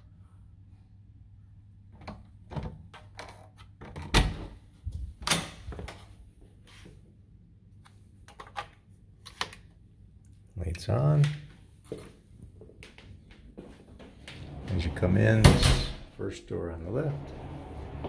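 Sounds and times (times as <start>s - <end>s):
door heavy thunks: 15.4s - 16.1s.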